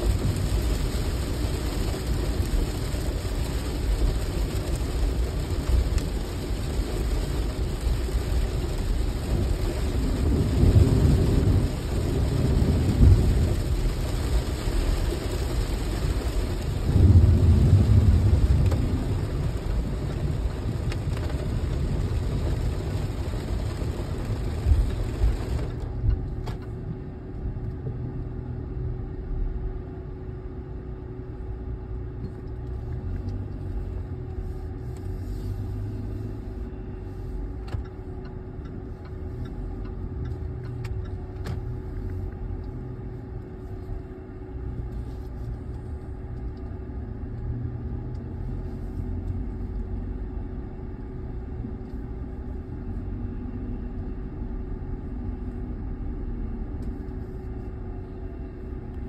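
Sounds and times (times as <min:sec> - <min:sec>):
car cabin rumble: 0:00.0 - 0:29.2.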